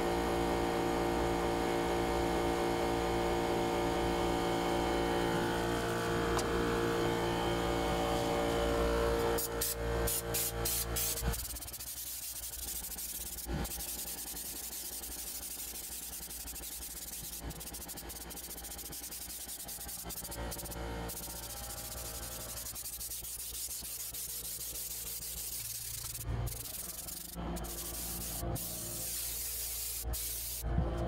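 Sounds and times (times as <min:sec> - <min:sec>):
spray gun hissing: 0:09.2 - 0:30.6.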